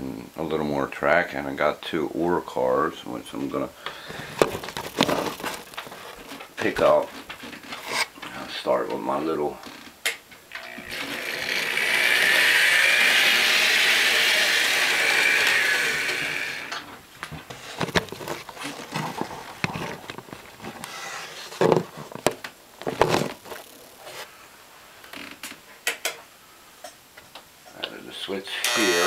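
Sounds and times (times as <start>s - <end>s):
model train motor whirring: 10.5s - 16.8s, 28.6s - 29.0s.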